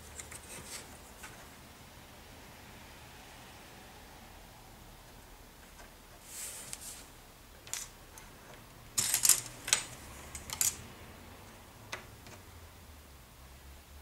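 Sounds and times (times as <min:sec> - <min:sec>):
plastic pieces clicking and rustling: 0:09.0 - 0:10.8.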